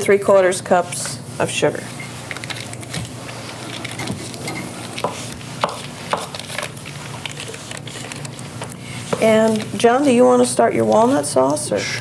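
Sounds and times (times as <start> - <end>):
paper wrappers rustling: 2.0 - 11.4.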